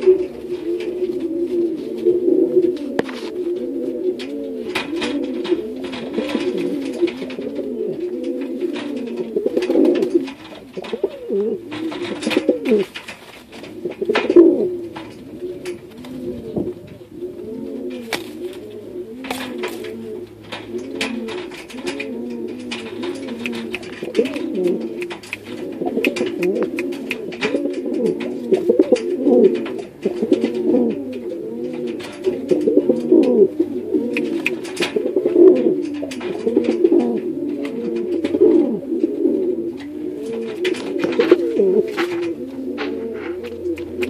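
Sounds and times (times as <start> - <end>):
pigeon cooing: 0.0 - 44.0
sharp clicks and taps: 19.2 - 31.2, 34.0 - 38.4.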